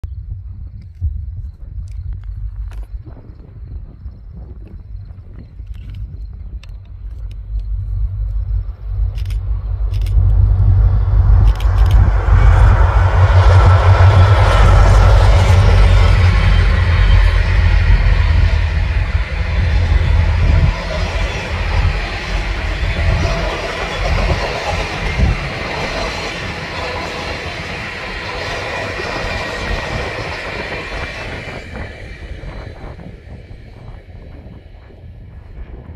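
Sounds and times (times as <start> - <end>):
sharp ticks: 5.6 - 10.7, 11.3 - 12.3
locomotive engine rumble: 6.2 - 34.4
wheel-on-rail noise: 6.6 - 33.8
train cars rolling past: 8.1 - 34.8.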